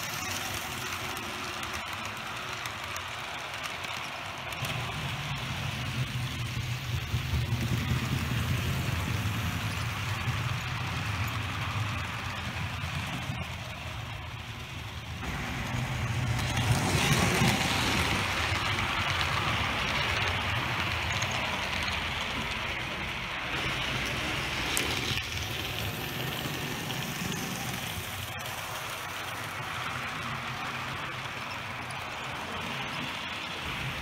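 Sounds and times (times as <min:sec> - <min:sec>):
model train wheels rattling: 0:00.0 - 0:34.0.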